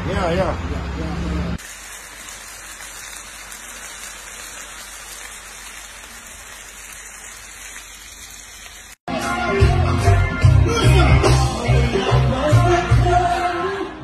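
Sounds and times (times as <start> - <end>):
fish sizzling in hot oil: 1.6 - 9.1
loud music with heavy beat: 9.1 - 13.6.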